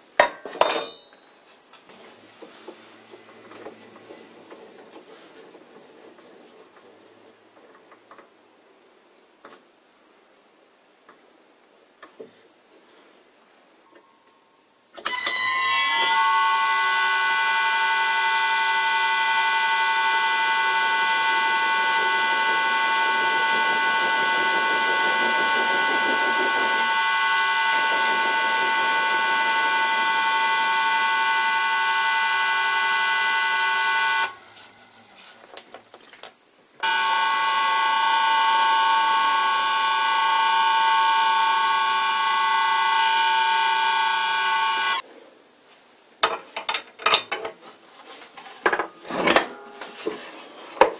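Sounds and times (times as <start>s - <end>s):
metal lathe high whine: 15.1s - 34.4s, 36.8s - 45.0s.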